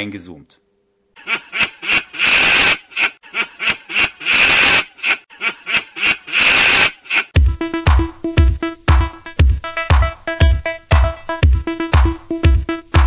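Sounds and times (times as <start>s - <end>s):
man laughing wheezily: 1.2s - 7.3s.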